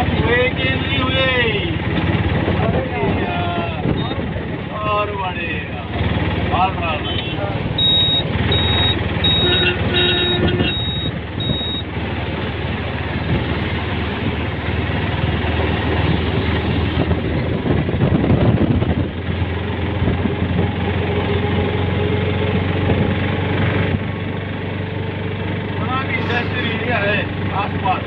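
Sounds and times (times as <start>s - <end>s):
auto-rickshaw engine running: 0.0s - 28.0s
road and wind noise: 0.0s - 28.0s
short high beeps: 7.8s - 9.7s, 10.6s - 11.8s.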